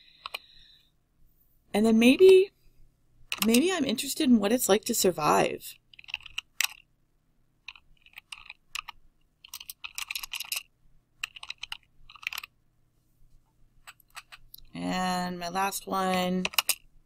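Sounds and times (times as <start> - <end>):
keyboard typing clicks: 11.2 - 12.5, 16.1 - 16.8.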